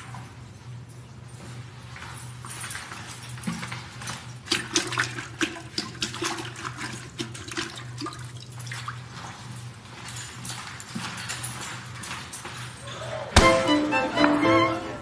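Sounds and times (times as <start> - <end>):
water splashing in toilet bowl: 4.5 - 9.0.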